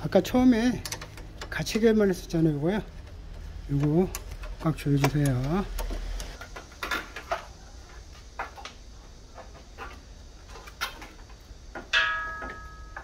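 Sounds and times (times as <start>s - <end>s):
tools clicking and tapping: 0.7s - 1.8s, 2.8s - 7.4s, 10.6s - 13.0s
sharp metallic clink: 11.9s - 13.0s.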